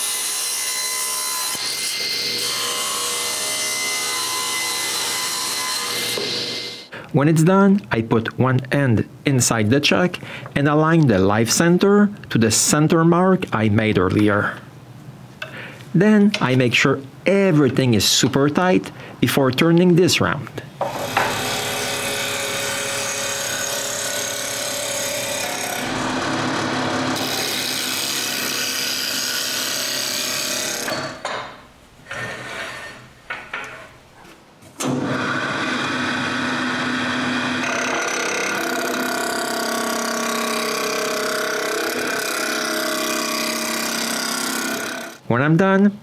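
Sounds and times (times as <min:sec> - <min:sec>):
turning tool cutting wood: 0:00.0 - 0:06.9, 0:20.9 - 0:31.1, 0:34.8 - 0:45.2
wood lathe running: 0:02.2 - 0:06.9, 0:21.0 - 0:30.9, 0:34.8 - 0:45.2.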